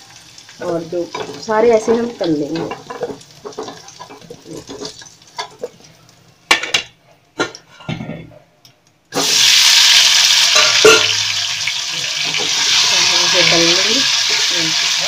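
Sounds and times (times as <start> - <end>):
hot oil sizzling: 0.0 - 6.9, 9.1 - 15.0
spoon scraping in a pan: 1.1 - 5.7.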